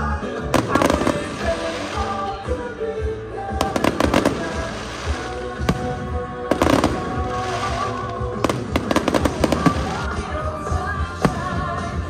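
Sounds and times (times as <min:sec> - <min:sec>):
music: 0:00.0 - 0:12.0
fireworks popping and banging: 0:00.5 - 0:02.6, 0:03.5 - 0:10.4.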